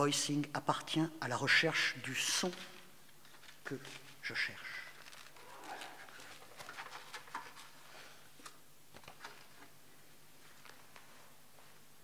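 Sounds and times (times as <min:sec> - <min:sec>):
paper sheets rustling: 0:02.4 - 0:08.0.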